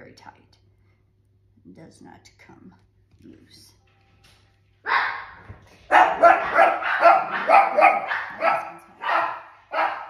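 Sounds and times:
dogs barking excitedly: 4.8 - 10.0.

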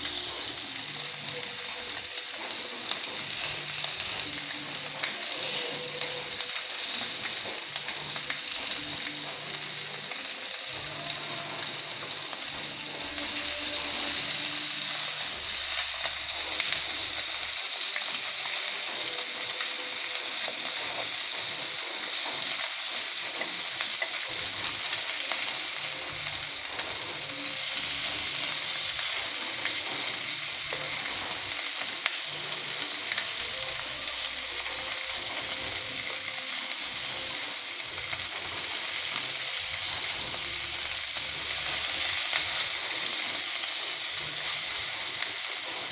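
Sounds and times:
fish frying in hot oil: 0.0 - 45.9.

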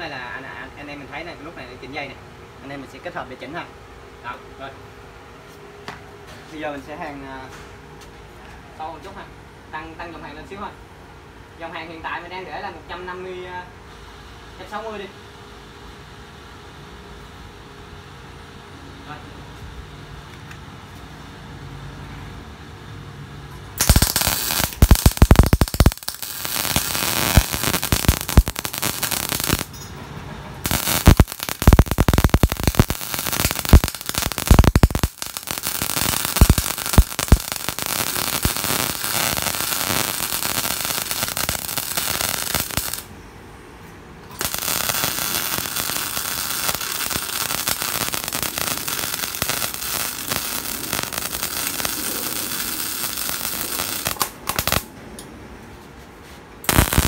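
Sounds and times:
welding arc crackling hiss: 23.8 - 29.7, 30.6 - 43.1, 44.3 - 54.9, 56.6 - 57.0
loud welding pops: 23.8 - 29.8, 30.6 - 43.1, 44.3 - 54.9, 56.6 - 57.0.

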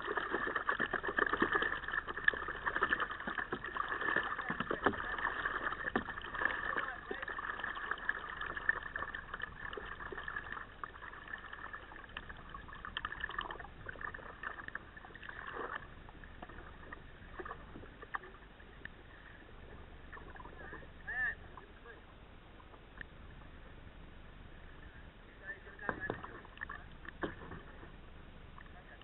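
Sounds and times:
water lapping against a kayak hull: 0.0 - 29.0
water swishes: 0.0 - 29.0.

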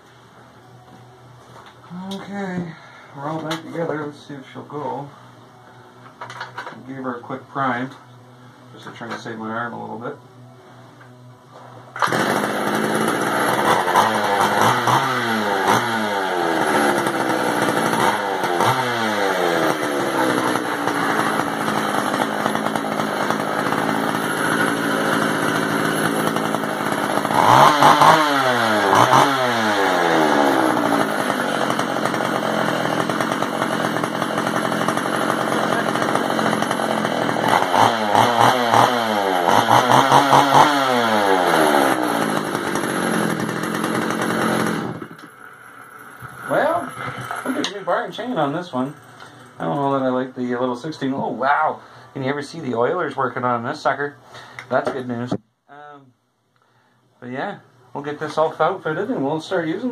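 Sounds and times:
chainsaw engine revving: 12.0 - 45.5, 46.2 - 48.9.

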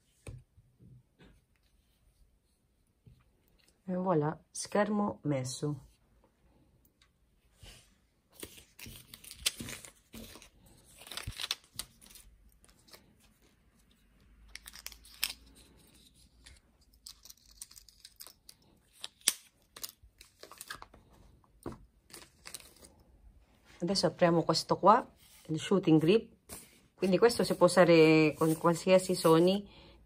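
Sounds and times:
plastic film rustling and crinkling: 8.3 - 13.6.

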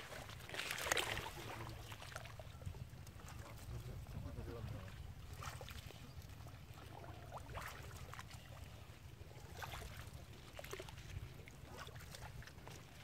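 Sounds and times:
wading steps sloshing in water: 0.0 - 13.0.

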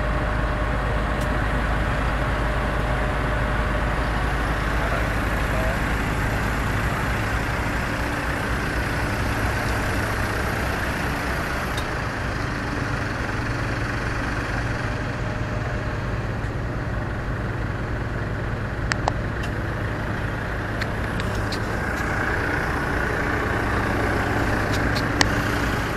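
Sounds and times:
engine running steadily: 0.0 - 25.9
sharp clicks: 18.9 - 19.6, 24.6 - 25.5.

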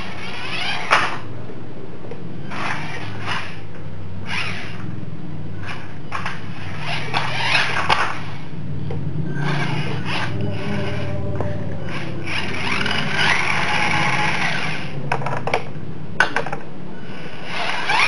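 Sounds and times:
toy truck motor whirring: 0.0 - 1.3, 2.4 - 4.9, 5.6 - 8.5, 9.3 - 11.2, 11.8 - 15.0, 17.0 - 18.0
steady low hum: 0.0 - 18.0.

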